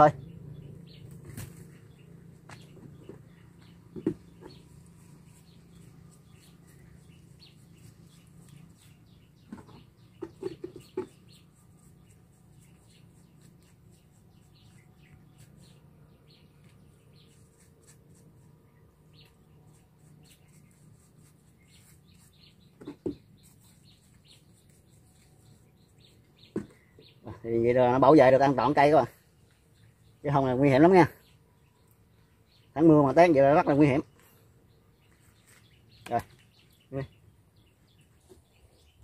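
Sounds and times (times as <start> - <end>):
steady low hum: 0.0 - 10.2
small birds chirping: 0.0 - 39.0.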